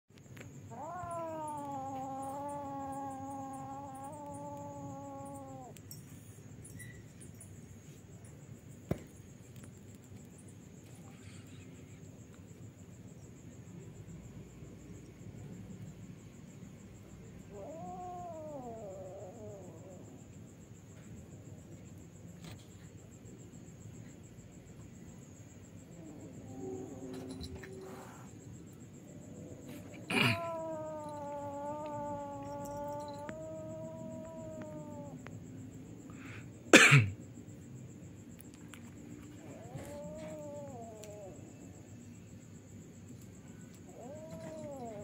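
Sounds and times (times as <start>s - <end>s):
cat yowling: 0.7s - 5.8s, 17.5s - 20.2s, 29.7s - 35.3s, 39.3s - 41.7s, 43.9s - 45.0s.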